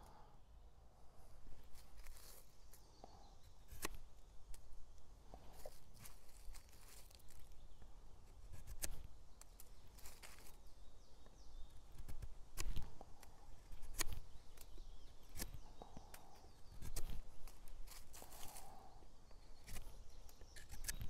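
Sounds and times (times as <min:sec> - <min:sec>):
knife scraping wood: 0:20.5 - 0:21.0.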